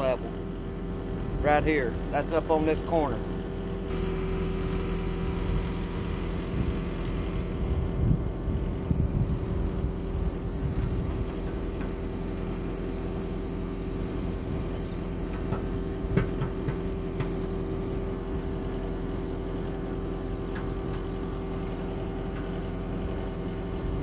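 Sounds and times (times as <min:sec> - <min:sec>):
diesel engine running: 0:00.0 - 0:24.0
high-pitched receiver beeping: 0:22.5 - 0:24.0.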